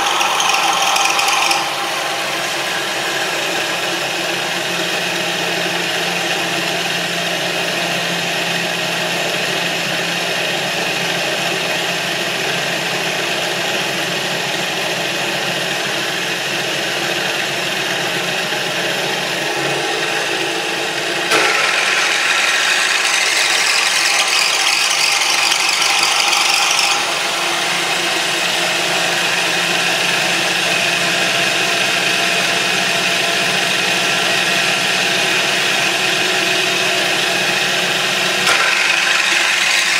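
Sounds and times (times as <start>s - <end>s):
motor whirring rattle: 0.0s - 3.5s, 21.1s - 28.6s, 38.4s - 39.9s.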